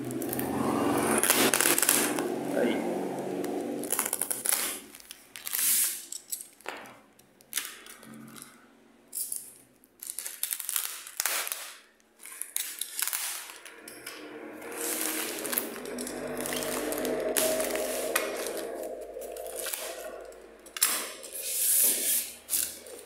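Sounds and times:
plastic wrap tearing and crinkling: 0.0 - 2.4, 3.2 - 6.7, 7.4 - 8.0, 9.9 - 23.0
box cutter slicing tape: 1.2 - 2.3, 20.8 - 22.8.

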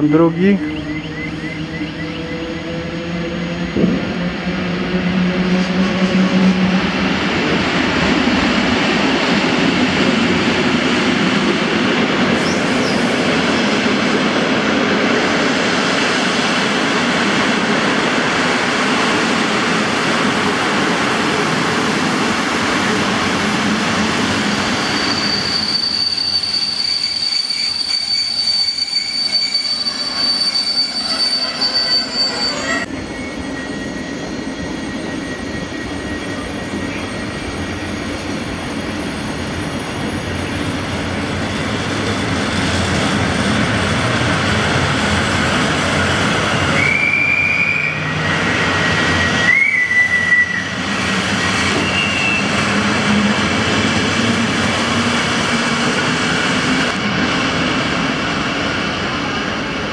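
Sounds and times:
standing train hum: 0.0 - 27.8, 28.4 - 59.9
train rolling past: 0.0 - 59.9
high brake squeal: 12.4 - 13.2, 24.4 - 39.4, 46.7 - 52.7.

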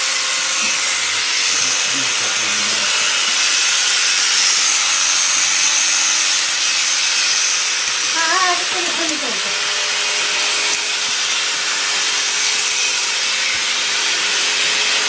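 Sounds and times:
machine hum: 0.0 - 13.4
shearing blades rasping: 0.0 - 15.0.

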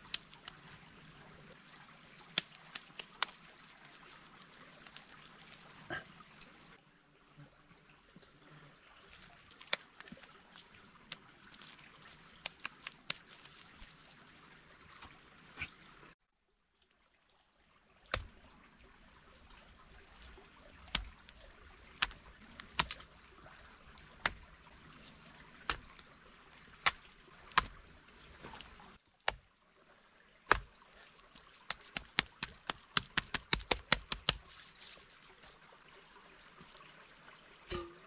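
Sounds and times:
stream trickling: 0.0 - 38.0
taps on stone and clay: 31.7 - 34.4.

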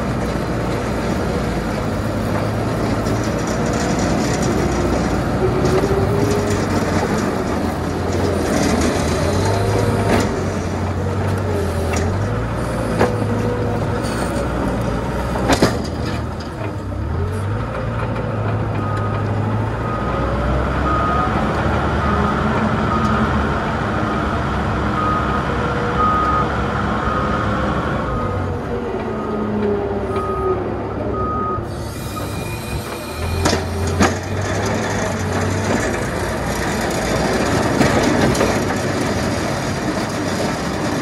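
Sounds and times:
tractor engine running: 0.0 - 41.0
reversing alarm beeps: 20.8 - 21.4, 25.0 - 25.4, 26.0 - 27.5, 30.1 - 33.5.

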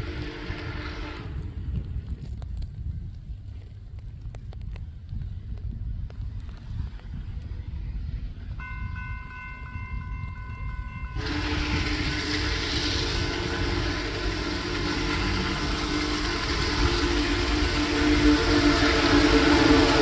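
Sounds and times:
steam locomotive whistle blast: 0.0 - 1.4, 8.6 - 20.0
low rumble: 0.0 - 20.0
bell ringing faintly: 8.6 - 11.3
hiss of steam: 11.2 - 20.0.

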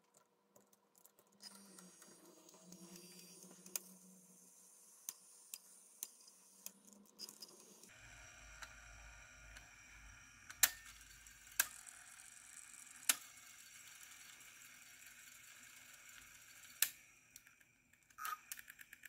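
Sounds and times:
faint motor whir: 1.0 - 19.0.

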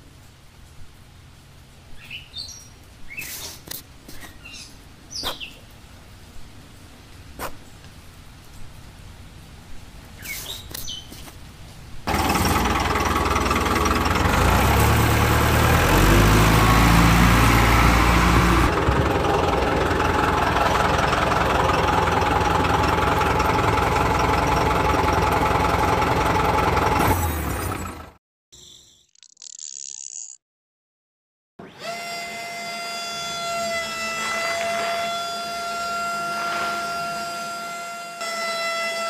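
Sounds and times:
vehicle engine running: 12.1 - 28.2.

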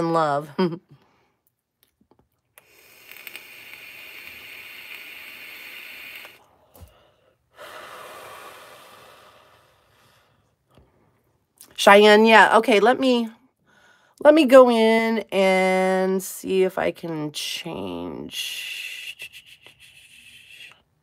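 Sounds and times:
person exhaling smoke: 2.6 - 10.4
person inhaling smoke: 2.6 - 10.6.

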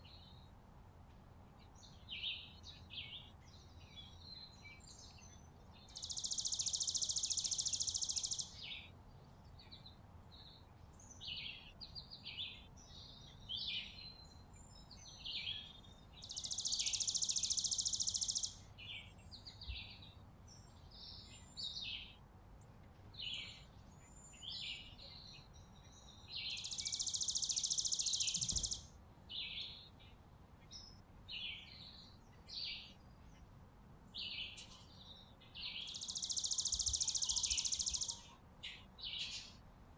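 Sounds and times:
chickadees chirping: 5.9 - 8.7, 16.3 - 18.7, 26.4 - 28.9, 35.7 - 38.3.

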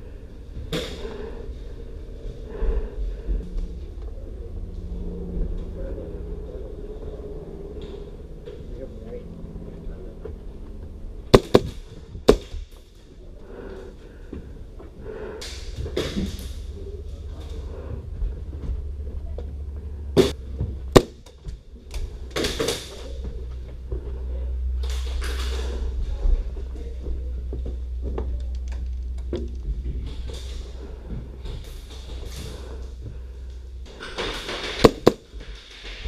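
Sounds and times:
low rumble: 0.0 - 36.0
airsoft gun cracks: 11.4 - 12.5.

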